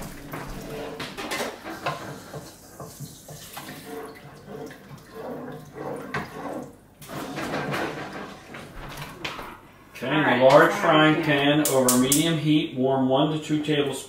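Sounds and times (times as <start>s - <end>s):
wooden spoon stirring water: 0.0s - 9.5s.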